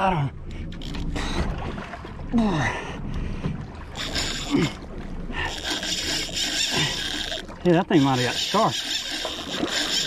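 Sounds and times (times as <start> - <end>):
water noise: 0.0 - 10.0
wind: 0.0 - 10.0
fishing reel cranking: 4.0 - 4.8, 5.4 - 10.0.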